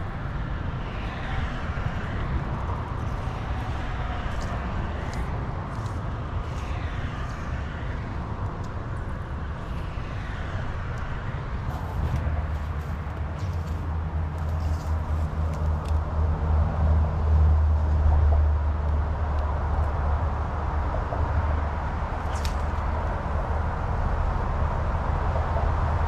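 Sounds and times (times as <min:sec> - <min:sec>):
wind buffeting microphone: 0:00.0 - 0:15.4.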